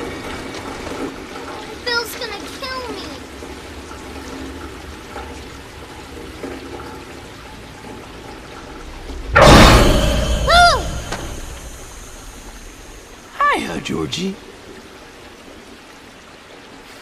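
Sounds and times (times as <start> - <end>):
water pouring into storm drain: 0.0 - 17.0
sudden loud water rush: 7.9 - 14.7.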